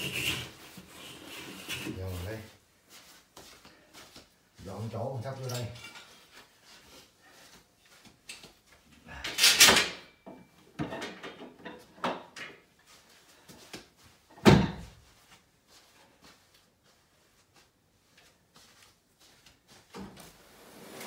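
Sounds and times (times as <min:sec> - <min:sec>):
rustling scrape: 0:00.0 - 0:03.3, 0:18.7 - 0:21.0.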